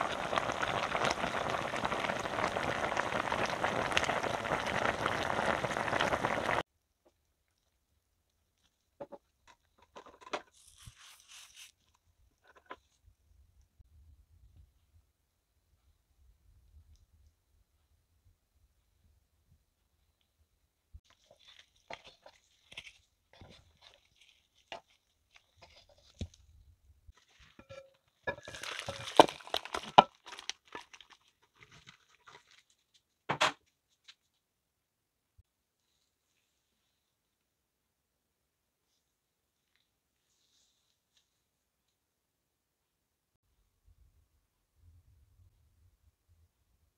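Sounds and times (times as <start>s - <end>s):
seeds pattering onto stew: 0.0s - 6.6s, 28.3s - 32.6s
stew boiling hard: 0.0s - 6.6s, 27.2s - 32.6s
rustling and clattering: 8.6s - 11.0s, 21.1s - 30.8s
wooden spatula stirring in pot: 21.1s - 26.4s, 27.2s - 32.6s.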